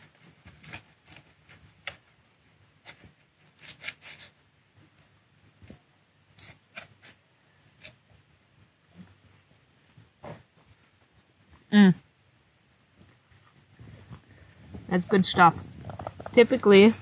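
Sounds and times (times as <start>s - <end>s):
utensil cutting crispy crust: 0.0s - 2.1s, 2.8s - 4.4s, 6.4s - 7.2s.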